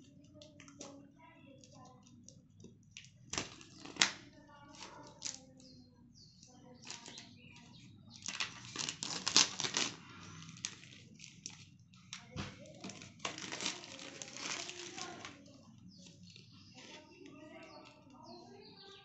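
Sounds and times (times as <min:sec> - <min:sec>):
paper and plastic rustling: 0:02.9 - 0:05.6, 0:06.8 - 0:18.2.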